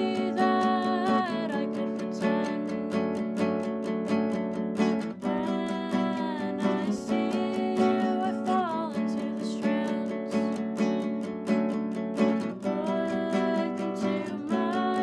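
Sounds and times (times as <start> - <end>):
strummed nylon-string guitar: 0.0 - 15.0
woman singing: 0.0 - 15.0.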